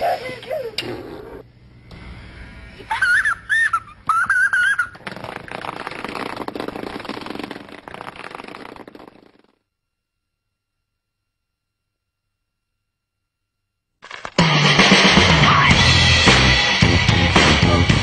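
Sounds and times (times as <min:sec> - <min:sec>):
rough rasping noise: 0:04.8 - 0:09.5.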